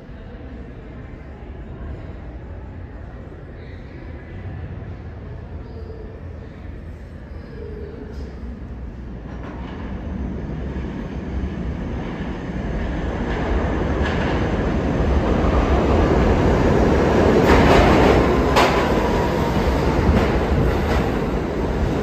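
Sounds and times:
subway train rumble: 0.0 - 22.0
wheels clacking on track: 17.2 - 21.8.

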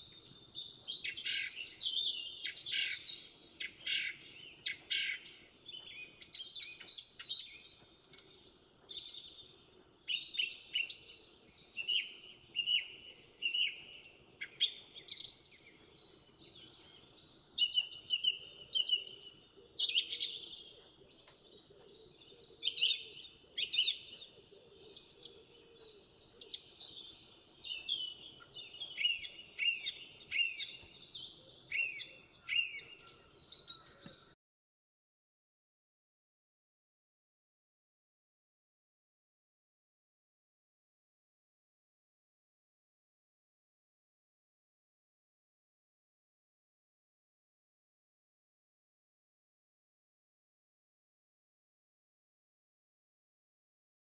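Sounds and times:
finches chirping and singing: 0.1 - 34.4.

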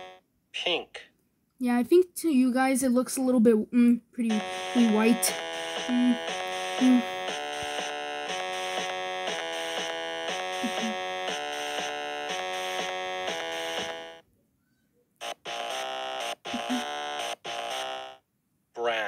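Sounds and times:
buzzy electronic music: 4.3 - 14.2, 15.2 - 18.2.

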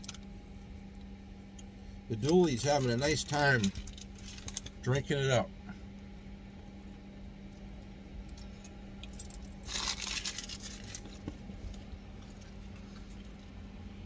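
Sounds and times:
steady low hum: 0.0 - 14.0
paper wrapper crinkling: 9.6 - 11.3.

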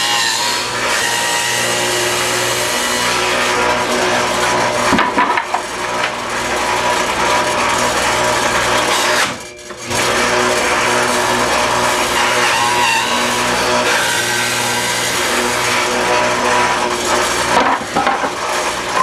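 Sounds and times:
table saw cutting wood: 0.0 - 19.0
boards knocking: 4.8 - 6.2, 17.5 - 18.4.

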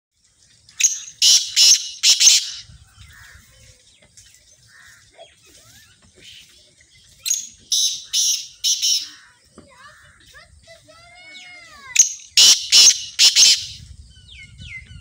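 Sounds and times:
francolin calling harsh notes: 0.9 - 2.7, 7.3 - 9.4, 11.3 - 13.8.

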